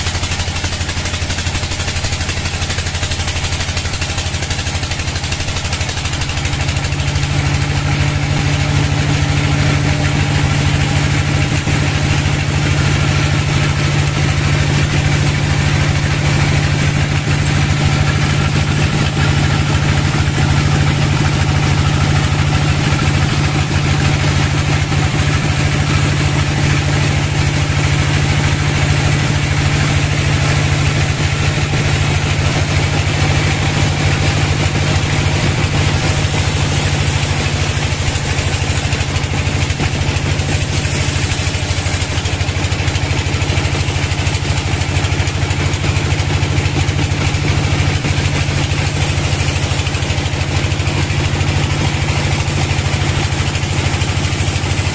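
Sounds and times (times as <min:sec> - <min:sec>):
bandsaw cutting log: 0:00.0 - 0:54.9.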